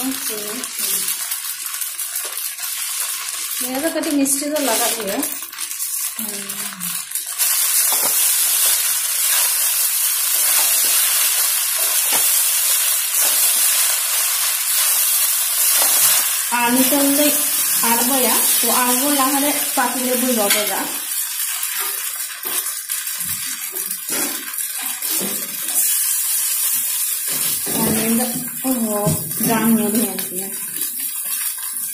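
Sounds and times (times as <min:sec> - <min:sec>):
food sizzling in a pan: 0:00.0 - 0:31.9
person speaking: 0:06.2 - 0:07.0, 0:27.7 - 0:30.6.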